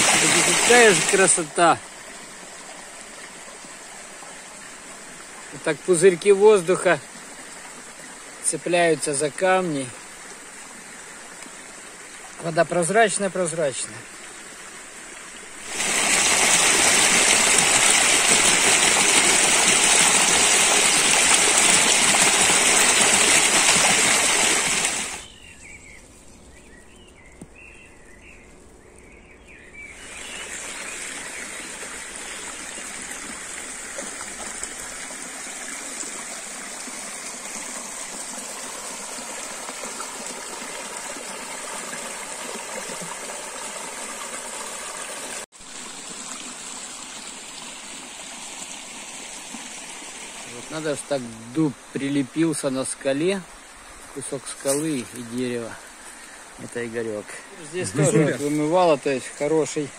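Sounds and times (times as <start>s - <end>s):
stream flowing over stones: 0.0s - 27.8s, 29.7s - 59.9s.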